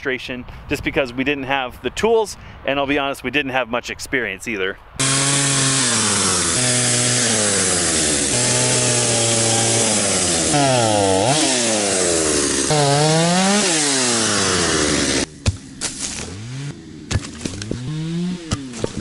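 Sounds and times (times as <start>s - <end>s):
chainsaw cutting log: 5.0s - 19.0s.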